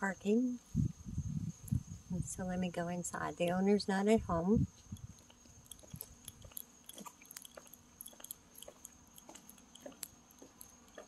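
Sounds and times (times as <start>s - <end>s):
footsteps on concrete: 5.2s - 11.0s.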